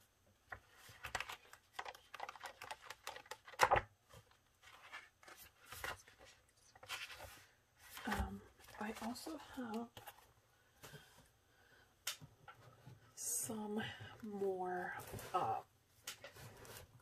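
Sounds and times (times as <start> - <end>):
paper rustling: 0.5 - 10.3.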